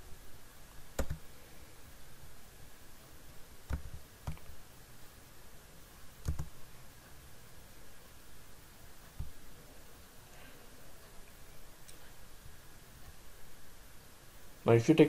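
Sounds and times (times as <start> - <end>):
computer mouse clicking: 1.0 - 1.2, 3.7 - 4.5, 6.2 - 6.6.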